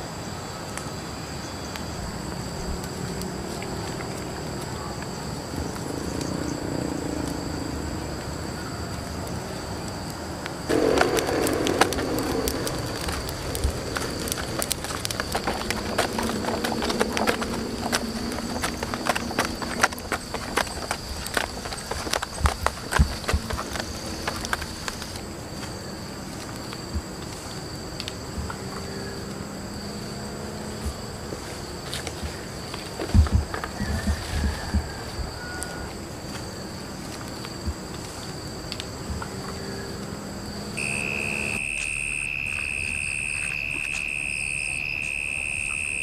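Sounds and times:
insects droning: 0.0 - 46.0
wood fire crackling and popping: 9.3 - 28.6.

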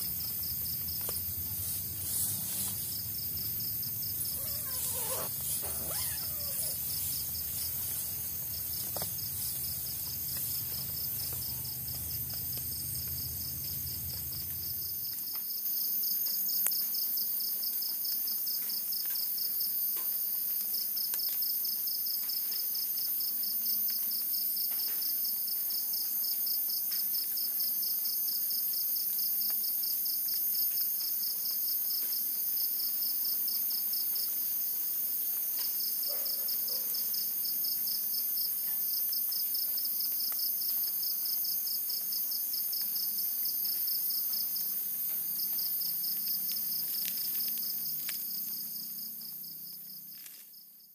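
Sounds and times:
low rumble: 0.0 - 15.3
high insect buzz: 0.0 - 16.2, 41.3 - 50.8
insects trilling: 0.0 - 22.6, 27.6 - 50.9.

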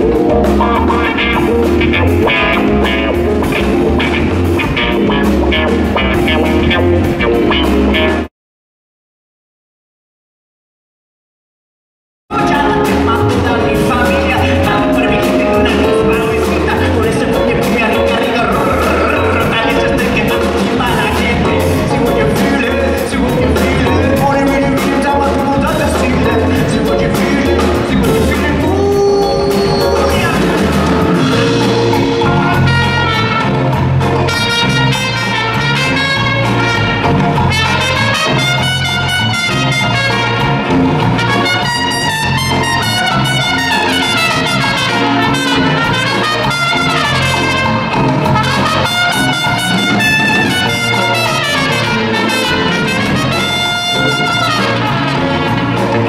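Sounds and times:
live band playing: 0.0 - 8.3, 12.3 - 56.0
trumpet playing quick runs: 0.6 - 8.3, 28.0 - 56.0.

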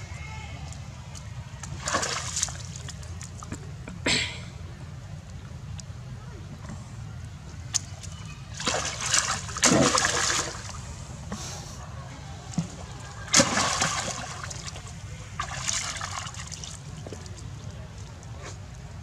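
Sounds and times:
water splashing: 1.1 - 3.5, 7.7 - 11.0, 12.4 - 18.2.

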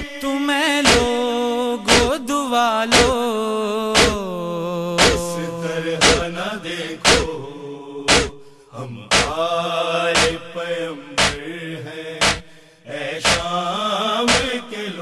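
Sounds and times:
men singing wordless long notes: 0.0 - 15.0
chest-beating slaps: 0.9 - 1.2, 1.9 - 2.2, 2.9 - 3.2, 4.0 - 4.2, 5.0 - 5.3, 6.0 - 6.3, 7.0 - 7.4, 8.1 - 8.4, 9.1 - 9.4, 10.2 - 10.4, 11.2 - 11.4, 12.2 - 12.5, 13.2 - 13.5, 14.3 - 14.6.

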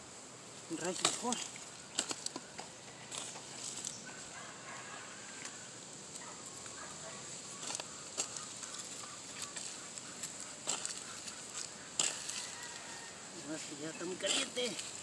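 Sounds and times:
hoe scraping dry soil: 7.5 - 15.0.

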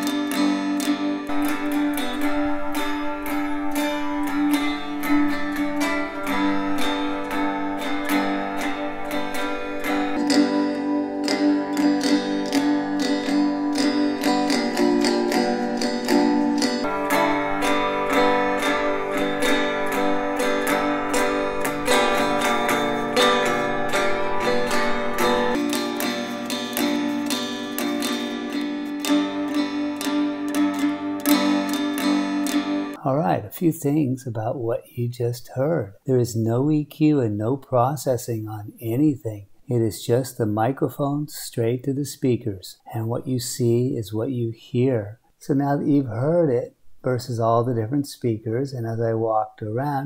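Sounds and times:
cigar box guitar strumming: 0.0 - 33.0.

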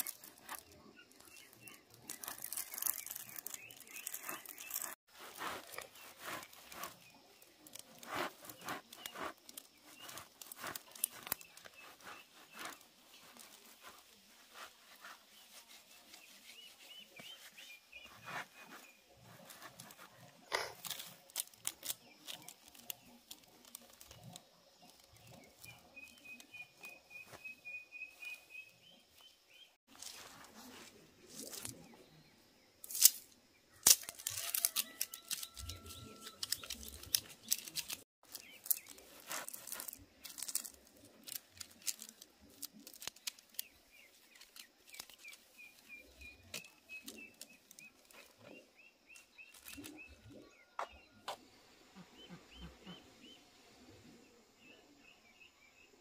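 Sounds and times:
bird chirping trill: 0.0 - 20.4, 21.9 - 29.8
rustling and clicking of plant material: 0.0 - 32.2, 32.8 - 51.4.

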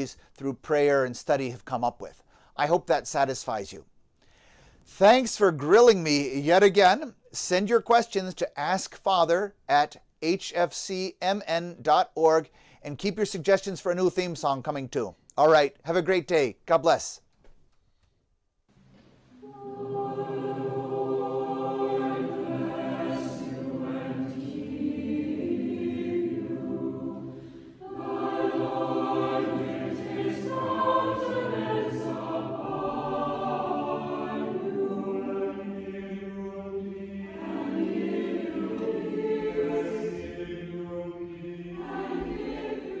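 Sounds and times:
choir singing: 19.3 - 43.0.

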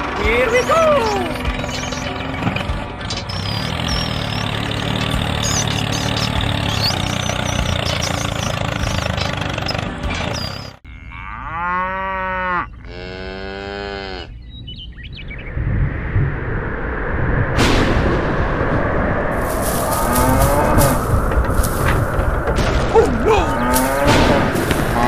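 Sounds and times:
motor rumble: 0.0 - 10.8, 19.3 - 25.0
high chirping squeaks: 0.4 - 10.8
cow mooing: 10.8 - 14.4, 19.9 - 21.1, 23.0 - 25.0.

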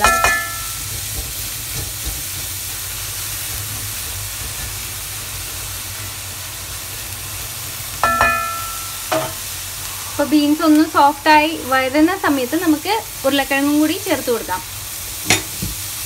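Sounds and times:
spatula knocking pan: 0.0 - 2.5, 8.0 - 9.4, 15.2 - 15.8
beans sizzling in hot oil: 0.0 - 16.0.

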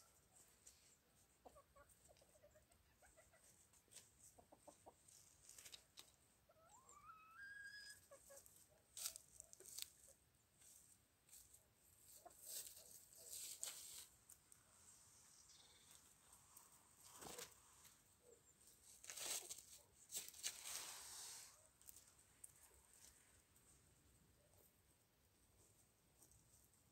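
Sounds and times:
chickens clucking: 0.1 - 11.0, 11.8 - 14.0
chicken rising call: 6.6 - 8.1
rustling in dry leaves: 8.3 - 14.4, 18.6 - 23.4.

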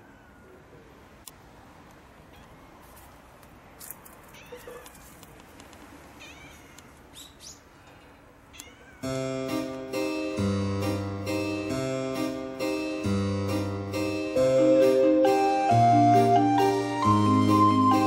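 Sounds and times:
cat meowing faintly: 0.0 - 0.7, 2.3 - 2.9, 4.3 - 5.2, 6.2 - 7.0, 8.5 - 9.1
light keyboard music: 9.0 - 18.0.

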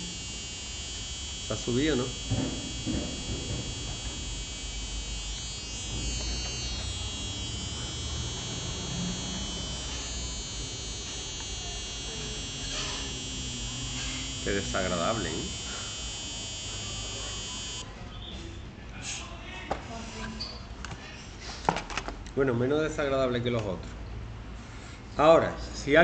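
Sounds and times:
high-pitched electronic whine: 0.0 - 17.8.

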